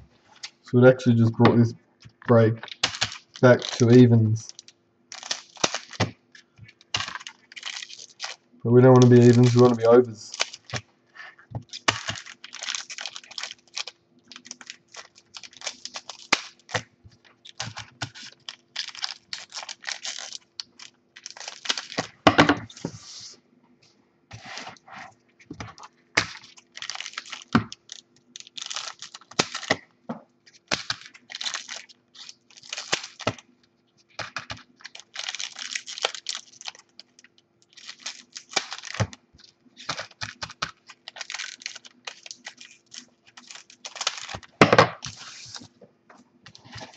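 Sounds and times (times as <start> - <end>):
faint steady hum: 0.0 - 46.9
cards clicking and shuffling: 1.4 - 10.8, 11.6 - 23.1, 34.2 - 36.9, 37.7 - 45.7
wrappers crinkling: 2.2 - 23.0, 24.4 - 29.8, 30.4 - 45.8, 46.5 - 46.9
scissors snipping wrappers: 2.6 - 6.1, 11.6 - 22.2, 25.7 - 29.8, 30.5 - 33.4, 34.2 - 39.2, 39.8 - 45.2.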